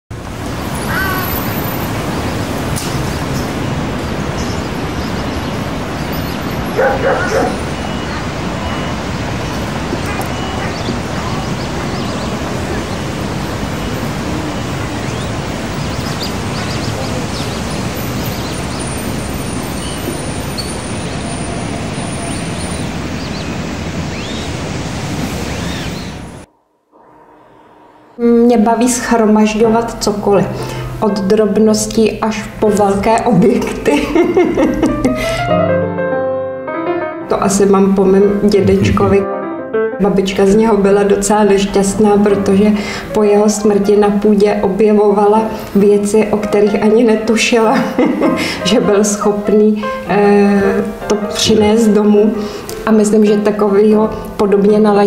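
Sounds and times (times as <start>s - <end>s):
outdoor background noise: 0.1s - 35.2s
dog barking: 6.7s - 9.0s.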